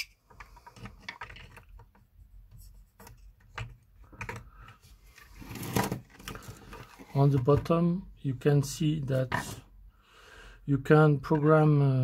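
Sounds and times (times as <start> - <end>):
plastic enclosure clicks and knocks: 3.0 - 4.5.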